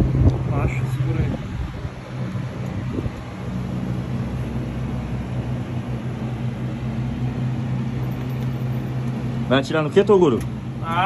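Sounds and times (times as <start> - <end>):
low hum and rumble: 0.0 - 11.0.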